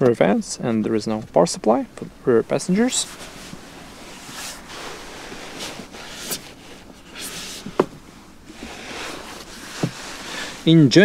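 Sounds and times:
rustling and handling noise: 0.7s - 10.9s
soft swishes: 2.9s - 7.9s.

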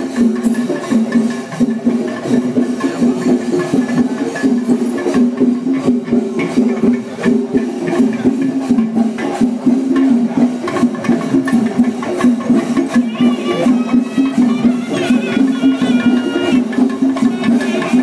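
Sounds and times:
quick dense drum strokes: 0.0s - 18.0s
higher melody line: 13.0s - 18.0s.

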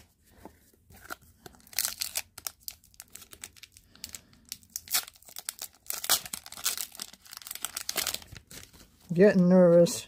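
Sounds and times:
plastic wrapper crinkling and tearing: 0.9s - 9.1s.

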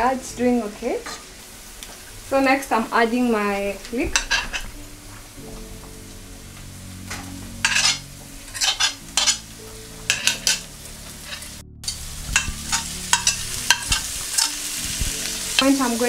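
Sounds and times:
onions sizzling in oil: 0.0s - 16.0s
wooden spoon scraping pan: 4.1s - 4.8s, 7.6s - 9.4s
fork scraping a plate: 7.6s - 9.4s.

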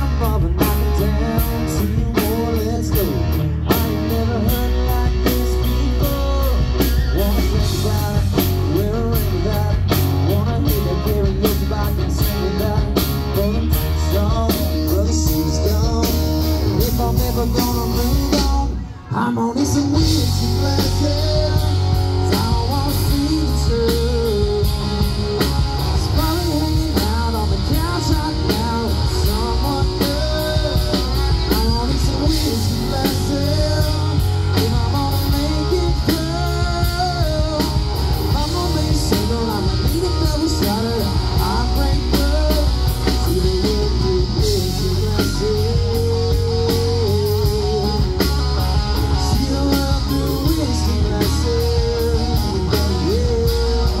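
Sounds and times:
man singing: 0.0s - 54.0s
rock band playing: 0.0s - 54.0s.

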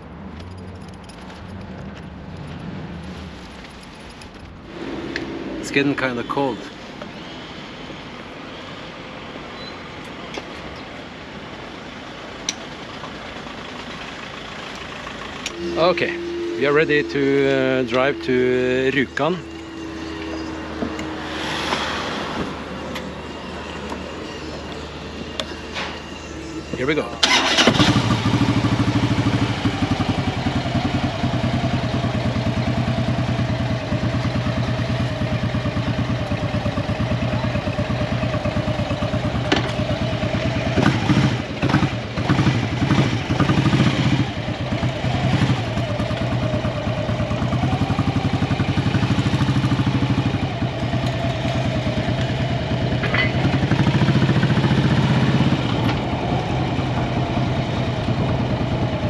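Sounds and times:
motorcycle engine running: 27.3s - 59.0s.

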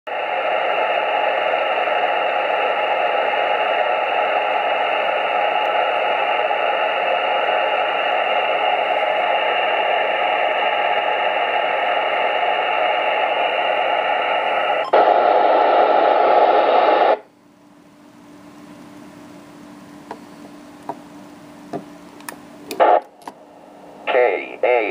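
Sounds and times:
radio receiver hiss: 0.1s - 17.3s, 22.6s - 24.9s.

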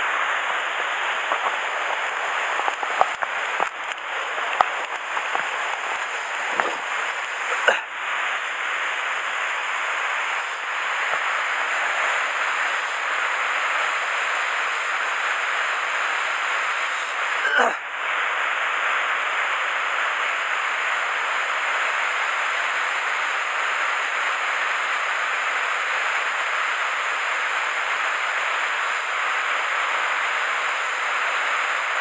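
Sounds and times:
waterfall rushing: 0.0s - 23.8s.

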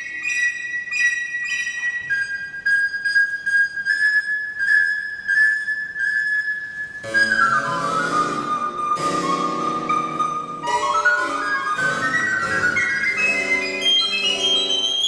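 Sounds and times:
recorder melody: 0.0s - 15.0s
sharp accompanying notes: 6.6s - 15.0s.

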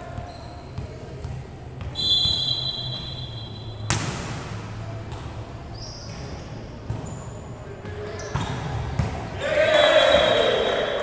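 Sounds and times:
referee's whistle: 2.0s - 3.9s, 9.7s - 10.9s
volleyball being struck: 3.7s - 5.3s.

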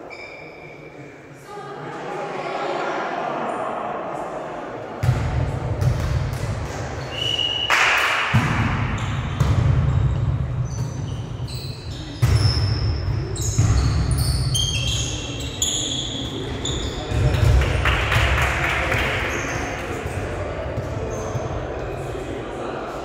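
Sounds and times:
sports shoes squeaking on floor: 0.0s - 0.9s, 9.0s - 17.4s, 21.1s - 21.6s
volleyball hits echoing: 5.0s - 7.0s, 7.6s - 11.1s.

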